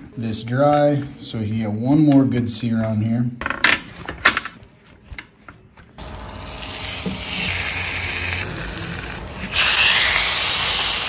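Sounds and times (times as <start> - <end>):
steak sizzling in a hot pan: 6.0 - 11.0.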